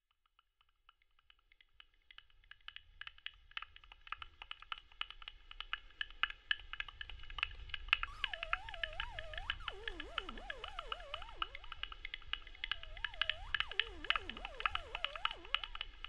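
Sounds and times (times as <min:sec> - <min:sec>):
rapid irregular ringing clicks: 0:03.6 - 0:16.0
wavering gliding electronic tone: 0:08.1 - 0:16.0.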